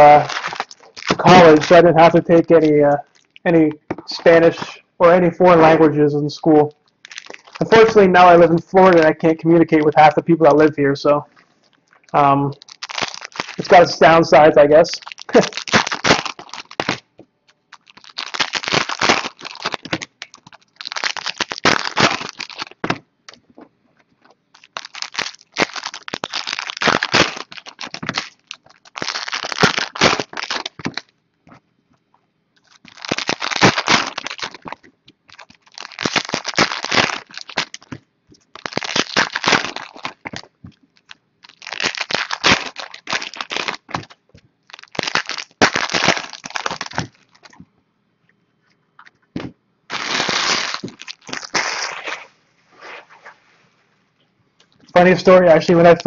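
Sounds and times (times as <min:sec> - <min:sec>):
foil wrappers tearing and crinkling: 0:00.0 - 0:03.3, 0:07.0 - 0:09.2, 0:12.6 - 0:17.1, 0:17.7 - 0:23.0, 0:24.5 - 0:31.1, 0:32.6 - 0:47.6, 0:49.9 - 0:52.3.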